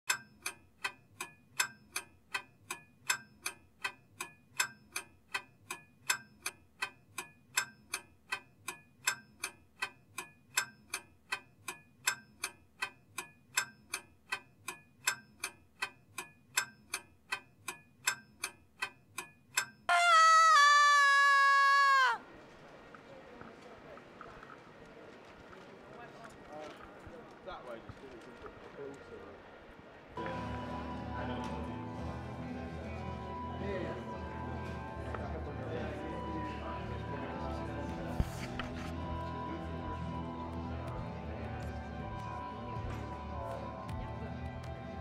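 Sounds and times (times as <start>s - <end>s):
clock ticking: 0.1s - 20.1s
woman screaming: 19.9s - 22.2s.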